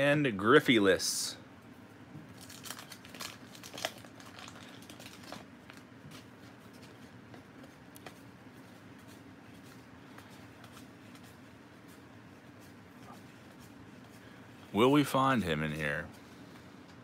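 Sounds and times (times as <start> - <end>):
low background hum: 0.0 - 17.0.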